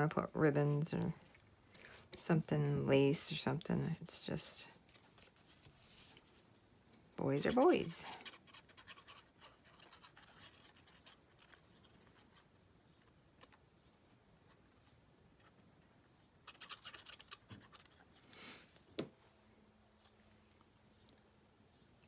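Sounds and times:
paper scratching and rustling: 0:04.9 - 0:06.5, 0:07.4 - 0:12.5.

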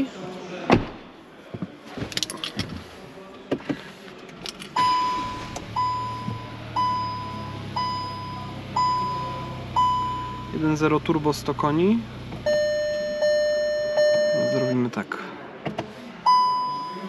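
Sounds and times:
handling clicks and rustles: 0:01.9 - 0:04.8
car engine idling: 0:04.3 - 0:14.7
car warning chime dinging: 0:04.8 - 0:11.2, 0:12.4 - 0:15.0, 0:16.3 - 0:17.0.

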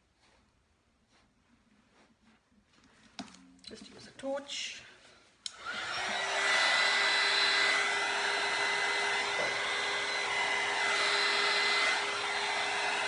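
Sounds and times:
heat gun fan whine: 0:05.4 - 0:13.0.

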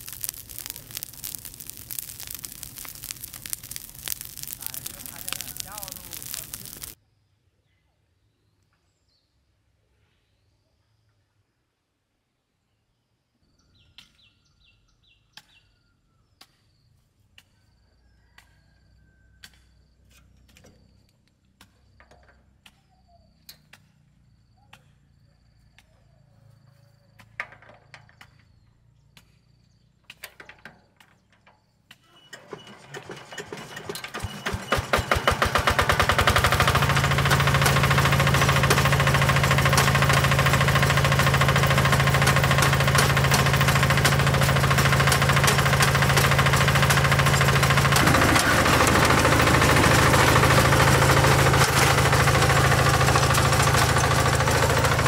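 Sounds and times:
diesel engine starting and running: 0:00.0 - 0:07.0, 0:32.3 - 0:55.0.

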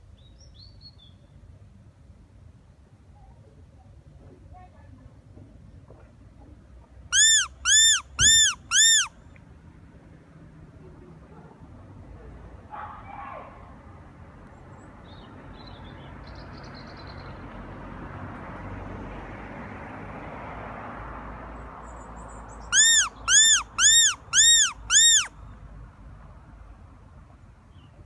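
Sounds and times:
predator whistle squeals: 0:07.2 - 0:09.1, 0:22.8 - 0:25.3.

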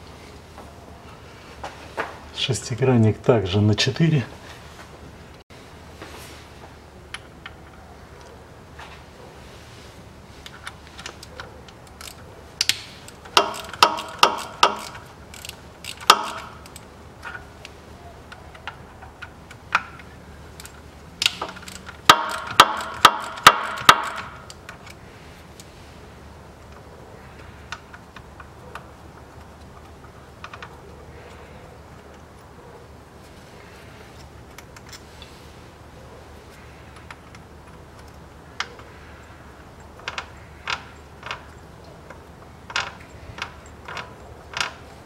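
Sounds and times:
ratchet wrench clicking: 0:11.8 - 0:17.4, 0:19.5 - 0:25.0.

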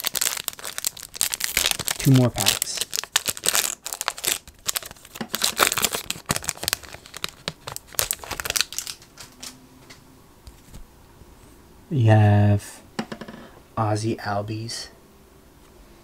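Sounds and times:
foil wrapper crinkling: 0:00.0 - 0:09.6.

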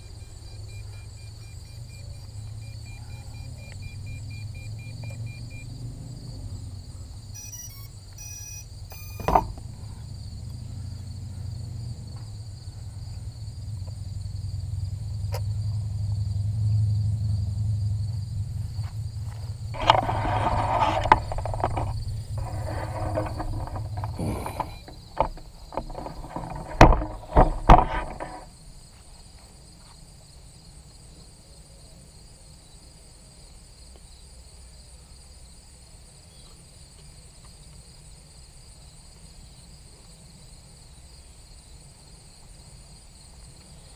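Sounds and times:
high insect buzz: 0:00.0 - 0:16.4, 0:18.0 - 0:30.0
camera handling rustling and knocks: 0:19.8 - 0:28.5.

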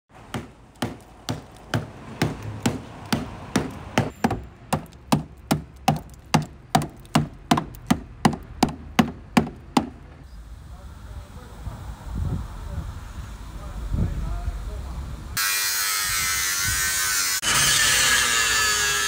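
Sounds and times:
hammer knocking on metal panel: 0:00.3 - 0:10.0.

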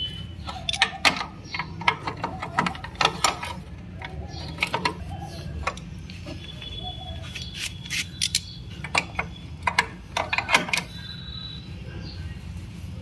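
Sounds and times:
metallic clicks of wrench: 0:00.4 - 0:05.0, 0:07.4 - 0:10.9.

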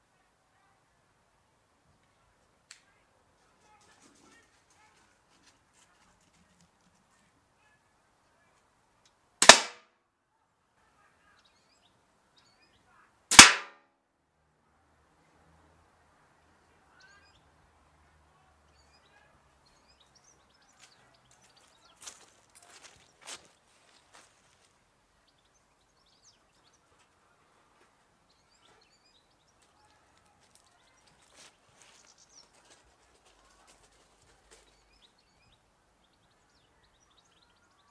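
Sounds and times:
crossbow shot cracks: 0:09.4 - 0:09.9, 0:13.3 - 0:13.8
faint birds chirping: 0:10.3 - 0:13.3, 0:14.7 - 0:37.9.

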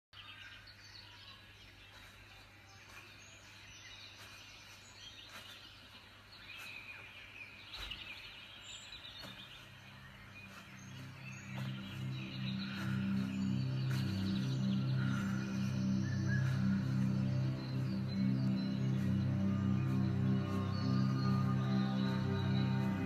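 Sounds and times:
birds chirping: 0:00.1 - 0:23.0
low sustained music note: 0:09.8 - 0:23.0.

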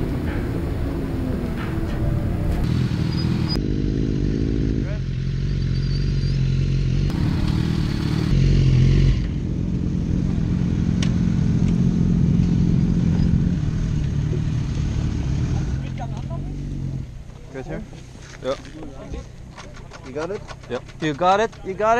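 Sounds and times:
motorcycles idling: 0:00.0 - 0:03.7, 0:04.8 - 0:08.6.

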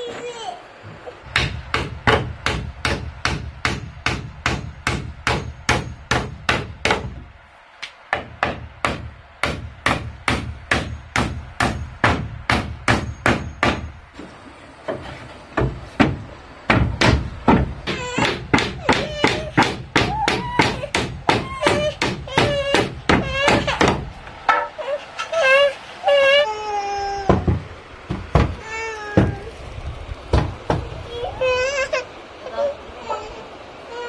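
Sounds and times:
hammer nailing wood: 0:01.3 - 0:07.2, 0:07.8 - 0:14.0, 0:14.9 - 0:24.8, 0:27.3 - 0:28.6.

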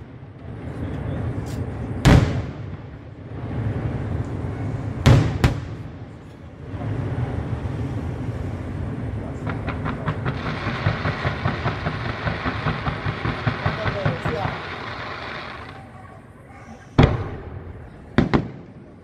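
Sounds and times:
firework aerial bursts: 0:00.0 - 0:19.0
rumbling: 0:00.0 - 0:19.0
rapid firework launch pops: 0:01.5 - 0:02.9, 0:05.0 - 0:05.9, 0:09.4 - 0:15.8, 0:17.0 - 0:17.5, 0:18.1 - 0:18.7.

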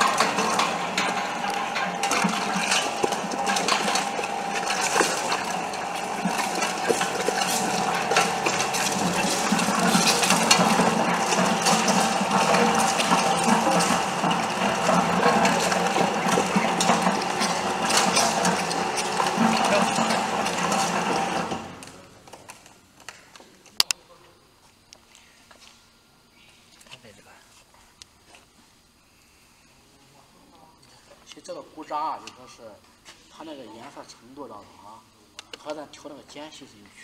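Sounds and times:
machine motor hum: 0:00.0 - 0:22.4
machine clicking and rattling: 0:00.0 - 0:22.5.

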